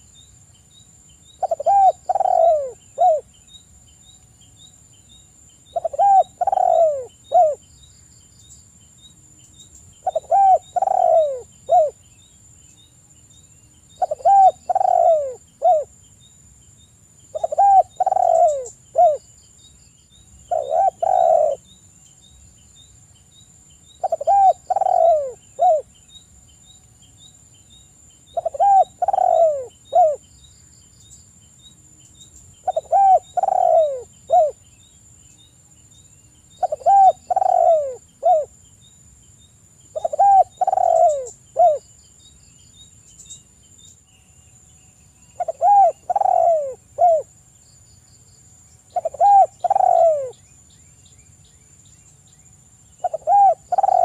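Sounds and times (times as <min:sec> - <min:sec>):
dove cooing: 0:01.4 - 0:03.3, 0:05.7 - 0:07.6, 0:10.0 - 0:12.0, 0:14.0 - 0:15.9, 0:17.3 - 0:19.2, 0:20.5 - 0:21.6, 0:24.0 - 0:25.9, 0:28.3 - 0:30.2, 0:32.6 - 0:34.6, 0:36.6 - 0:38.5, 0:39.9 - 0:41.8, 0:45.4 - 0:47.3, 0:48.9 - 0:50.4, 0:53.0 - 0:54.0.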